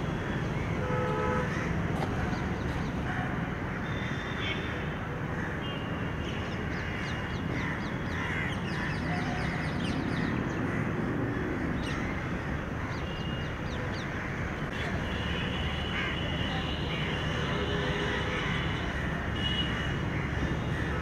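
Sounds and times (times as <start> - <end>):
crows cawing: 6.7 - 9.6, 14.0 - 14.6.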